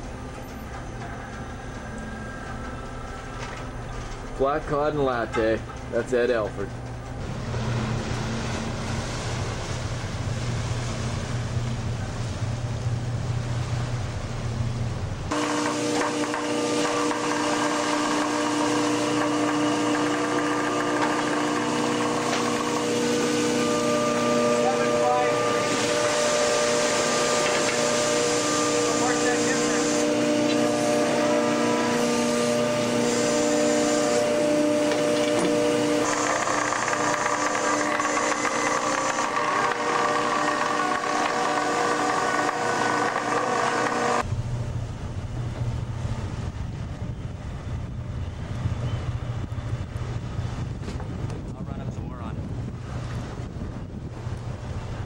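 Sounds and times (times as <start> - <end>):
winch whining: 0.0 - 13.1, 14.3 - 44.3
low steady rumble: 0.0 - 15.4, 44.2 - 55.0
ship engine humming: 0.0 - 51.6
wind noise: 44.2 - 55.0.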